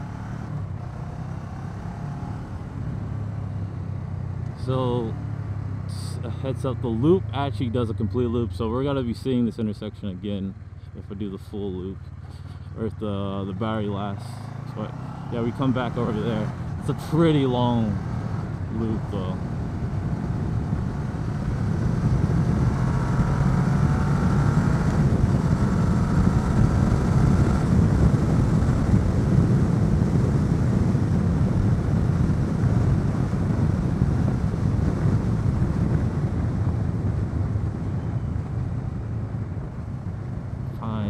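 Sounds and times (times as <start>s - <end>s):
motorcycle engine running: 0.0s - 41.0s
wind on microphone: 19.3s - 40.6s.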